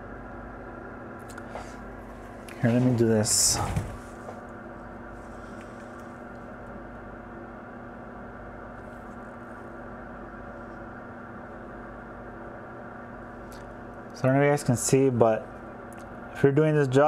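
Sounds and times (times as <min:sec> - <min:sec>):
electronics humming: 0:00.0 - 0:17.0.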